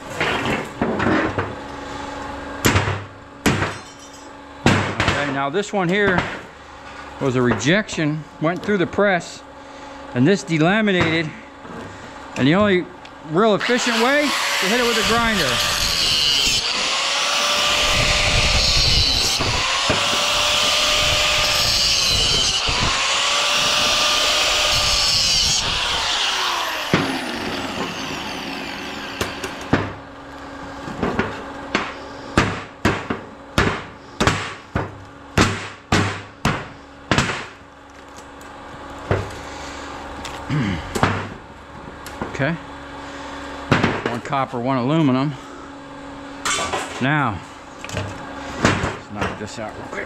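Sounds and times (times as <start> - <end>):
angle grinder cutting metal: 13.4 - 29.7.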